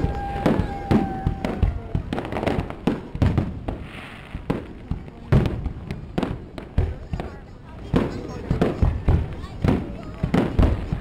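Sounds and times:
crackling hiss: 0:00.0 - 0:06.8
fireworks bursting: 0:00.0 - 0:11.0.

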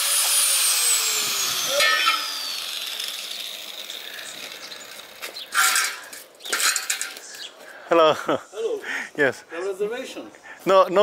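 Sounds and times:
power tool whining and winding down: 0:00.0 - 0:06.2.

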